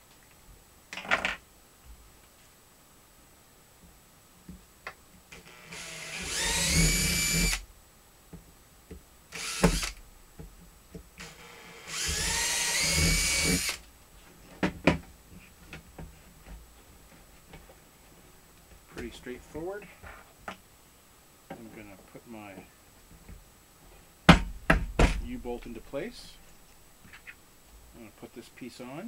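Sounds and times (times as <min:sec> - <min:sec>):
power drill boring plastic: 0:05.4 - 0:07.6, 0:09.3 - 0:10.0, 0:11.2 - 0:13.8.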